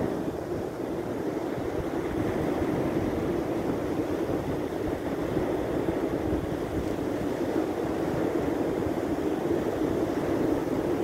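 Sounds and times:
ocean surf breaking: 0.0s - 11.0s
wind buffeting microphone: 0.0s - 11.0s.

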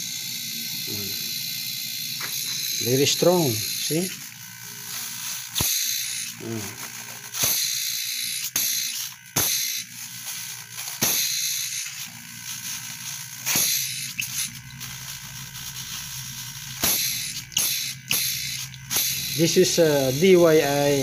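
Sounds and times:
pump humming: 0.0s - 21.0s
air hissing: 10.8s - 12.1s, 13.4s - 14.6s, 15.5s - 21.0s.

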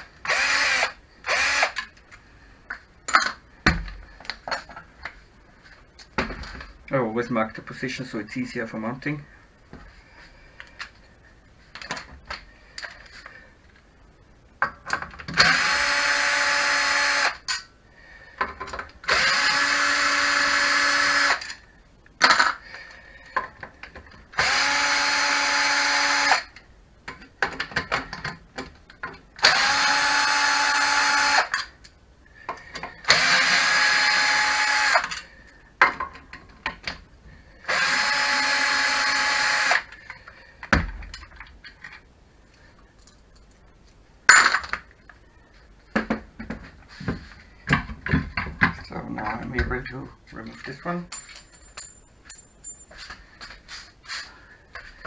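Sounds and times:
cordless drill whining: 0.2s - 1.8s, 15.4s - 17.4s, 19.1s - 21.6s, 24.4s - 26.5s, 29.4s - 31.6s, 33.0s - 35.1s, 37.6s - 39.9s.

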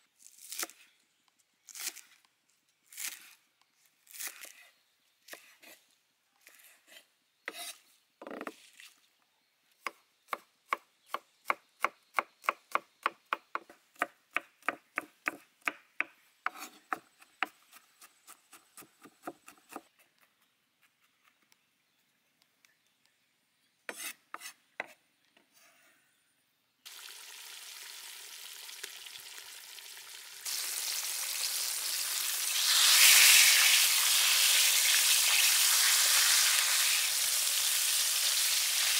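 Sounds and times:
fish deep-frying in hot oil: 26.9s - 38.9s.

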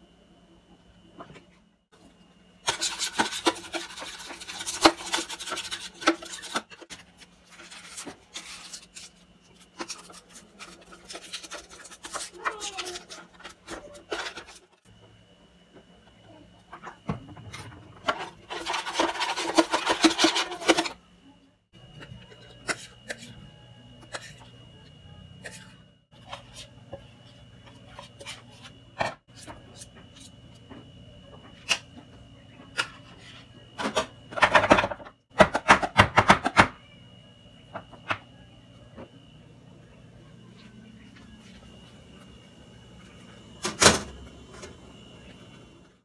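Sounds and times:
brush scrubbing metal pan: 2.7s - 6.8s.

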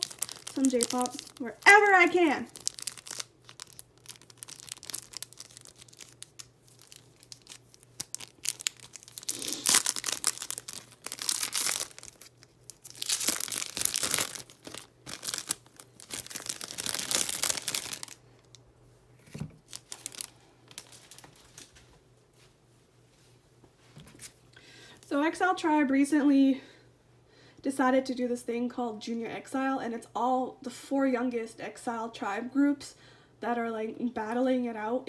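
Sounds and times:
plastic sleeves crinkling: 0.0s - 18.6s, 19.2s - 21.9s.

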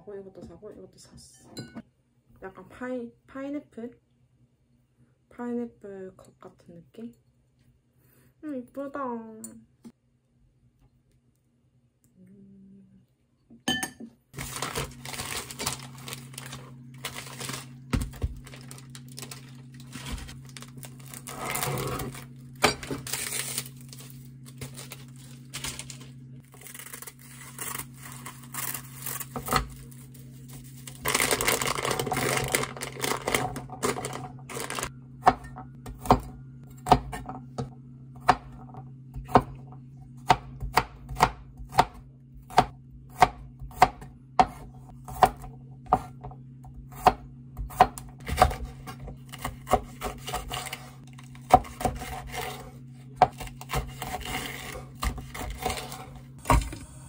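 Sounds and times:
low hum: 14.4s - 57.0s
knife chopping on wooden board: 35.2s - 37.2s, 40.2s - 46.2s.

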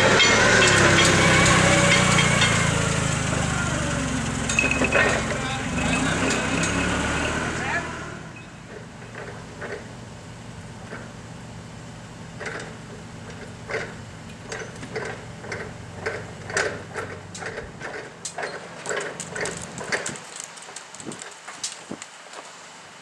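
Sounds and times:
forklift forks knocking and clanking: 0.0s - 3.4s, 4.4s - 6.9s, 12.4s - 20.3s
engine idling: 0.0s - 20.2s.

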